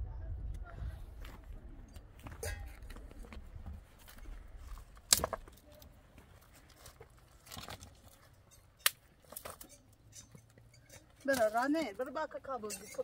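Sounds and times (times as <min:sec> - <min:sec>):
dry branch cracking: 0:04.8 - 0:05.9, 0:06.7 - 0:08.2.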